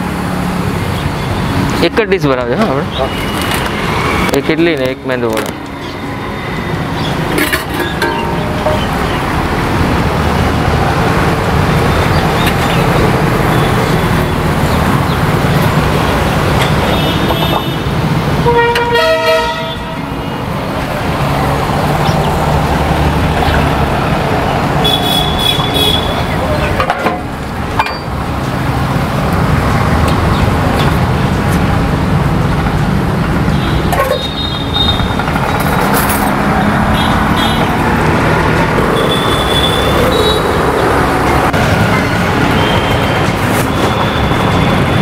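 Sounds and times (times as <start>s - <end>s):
traffic rumble: 0.0s - 45.0s
car horns tooting: 16.6s - 20.5s, 24.8s - 26.9s, 33.4s - 35.2s, 36.8s - 37.8s, 38.9s - 40.8s, 41.8s - 45.0s.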